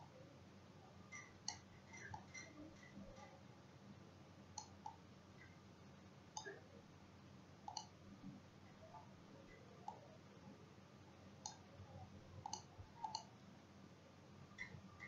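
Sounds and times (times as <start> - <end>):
computer mouse clicks: 1.1 - 3.3, 4.6 - 5.6, 7.6 - 8.0, 9.5 - 10.0, 11.4 - 11.6, 12.4 - 13.3.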